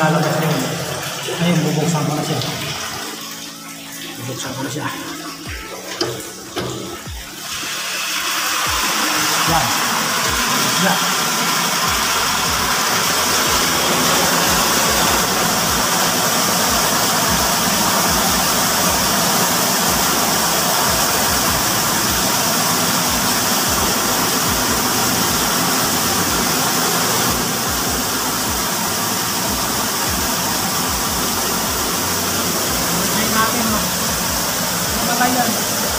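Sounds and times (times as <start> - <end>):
water rushing into cistern: 0.0 - 35.9.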